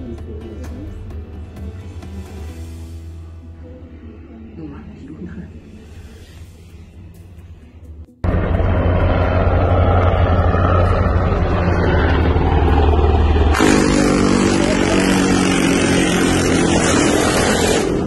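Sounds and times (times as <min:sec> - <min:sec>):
vehicle engine running: 0:06.6 - 0:18.0.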